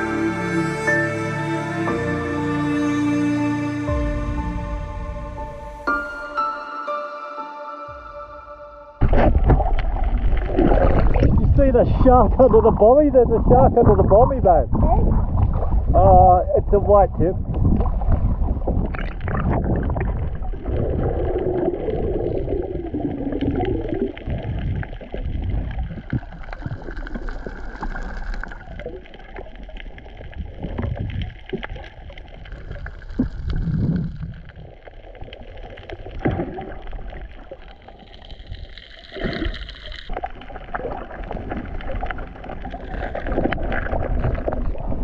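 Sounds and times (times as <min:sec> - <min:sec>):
muffled underwater water rush: 0:09.0 - 0:45.0.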